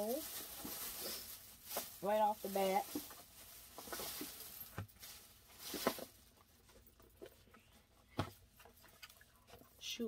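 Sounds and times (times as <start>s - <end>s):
handling rustles and taps: 2.8s - 9.7s.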